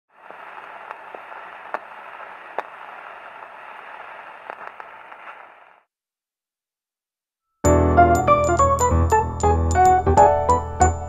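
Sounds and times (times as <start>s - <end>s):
record surface hiss: 0.1s - 5.9s
record clicks and pops: 0.2s - 5.7s.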